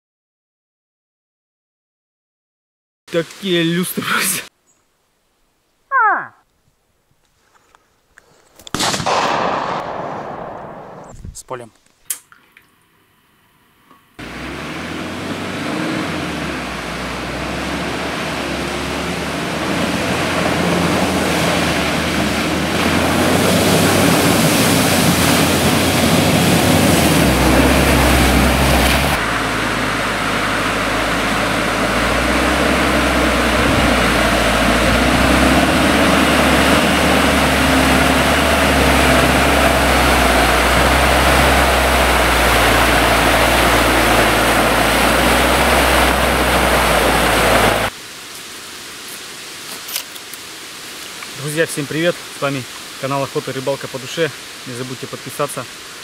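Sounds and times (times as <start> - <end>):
churning and splashing through mud: 14.2 - 47.9
vehicle engine hum: 14.2 - 48.0.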